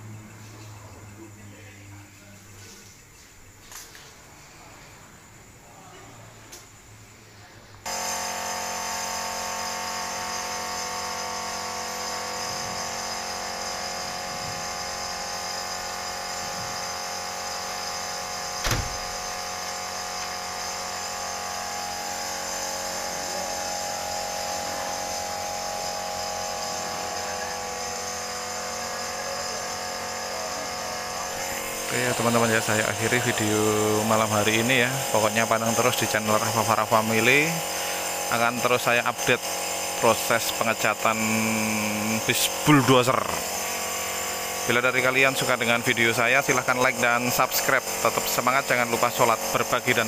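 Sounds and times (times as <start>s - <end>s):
machine motor whining: 7.9s - 50.0s
sharp knock: 18.6s - 19.3s.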